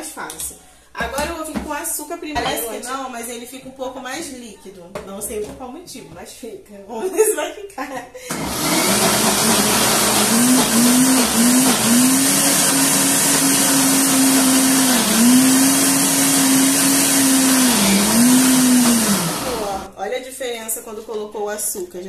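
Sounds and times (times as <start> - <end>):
blender motor running: 8.3 - 19.9.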